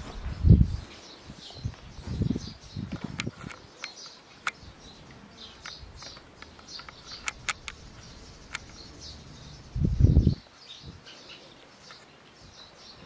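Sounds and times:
small birds chirping: 0.0s - 13.0s
sharp clicks: 2.9s - 9.2s.

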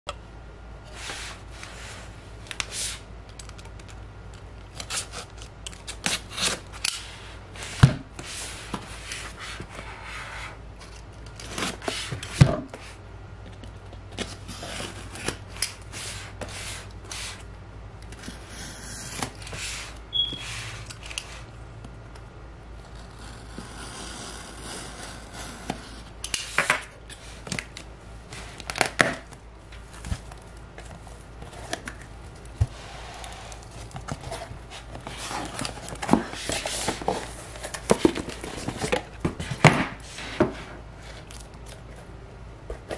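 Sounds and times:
packing tape being cut: 4.7s - 7.1s
cardboard scraping and rubbing: 32.6s - 41.3s.

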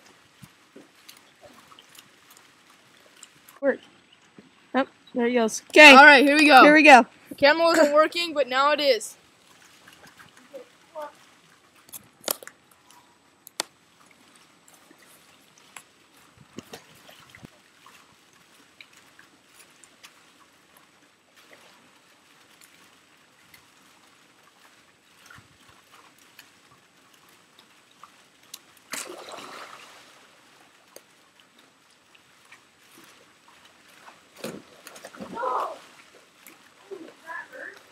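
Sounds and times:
pool water trickling and lapping: 0.0s - 37.9s
water splash: 13.5s - 37.9s.

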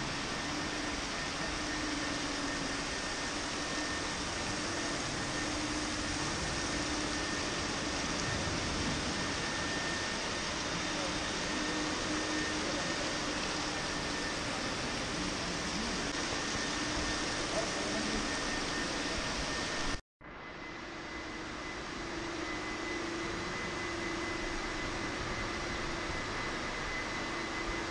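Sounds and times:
fountain water rushing: 0.0s - 20.0s.

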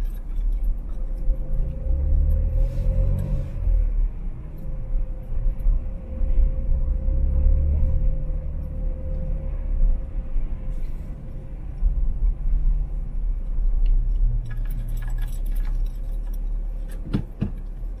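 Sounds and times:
light clicks and rattles: 0.0s - 1.7s, 13.4s - 18.0s
car road and engine rumble: 0.0s - 18.0s.

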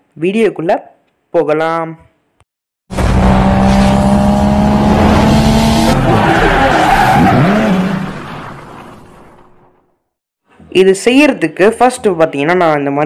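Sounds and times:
sports car engine: 2.9s - 9.8s
tyres skidding: 2.9s - 9.9s.

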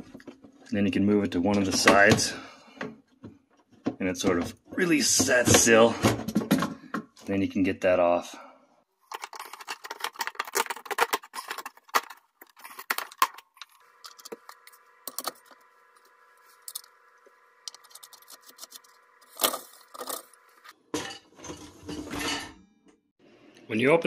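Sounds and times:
plastic parts clicking and rattling: 9.0s - 17.0s, 17.6s - 20.4s.

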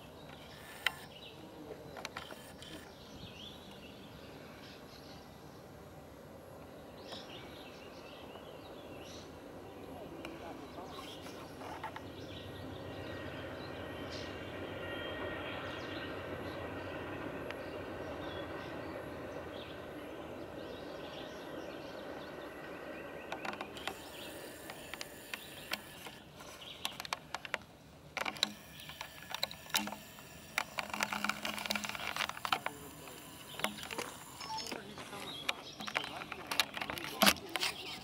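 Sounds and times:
scattered clicks and knocks: 26.8s - 38.0s.

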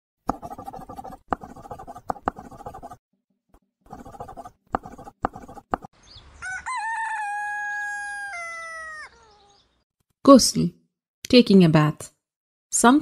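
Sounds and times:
marker scratching on board: 0.3s - 3.0s, 3.9s - 5.9s
rooster crowing: 6.4s - 9.4s.

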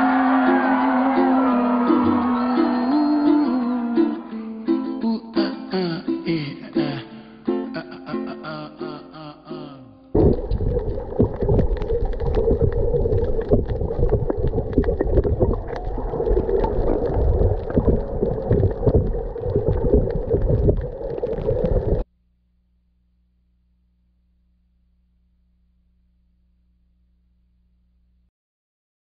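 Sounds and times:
underwater crackling and knocks: 10.2s - 22.0s.

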